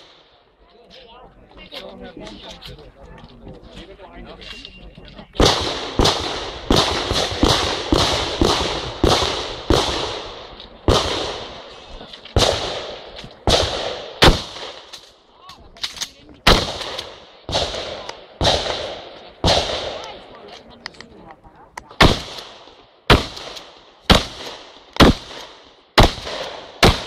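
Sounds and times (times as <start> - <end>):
shotgun shots echoing: 5.4 - 11.7, 12.4 - 15.0, 16.4 - 20.2, 21.9 - 27.0.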